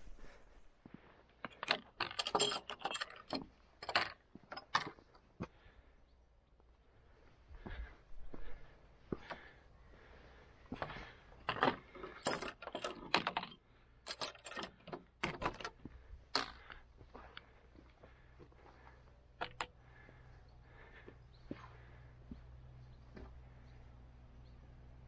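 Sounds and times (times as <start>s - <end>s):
metal gate chain clinking: 1.6s - 4.8s, 12.1s - 15.7s.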